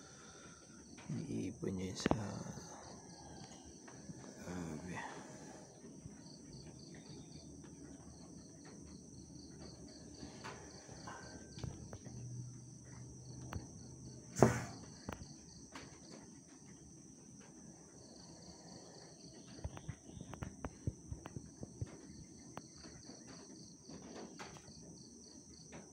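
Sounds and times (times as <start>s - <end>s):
insects trilling: 0.0s - 25.9s
sharp knock: 14.4s - 14.8s.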